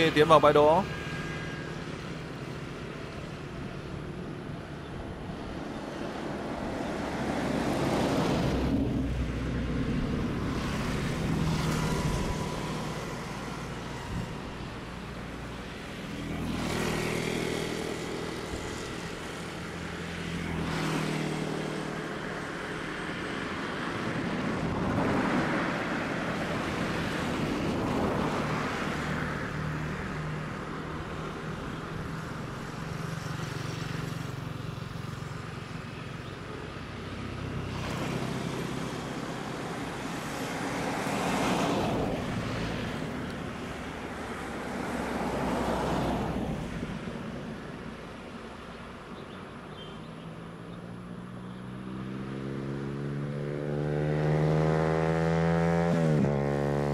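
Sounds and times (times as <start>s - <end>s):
distant jet engines humming: 0.0s - 50.5s
vehicles passing: 0.0s - 56.9s.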